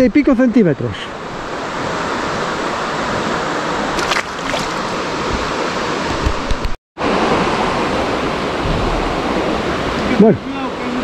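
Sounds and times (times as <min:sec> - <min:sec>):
river water running: 0:03.7 - 0:06.0.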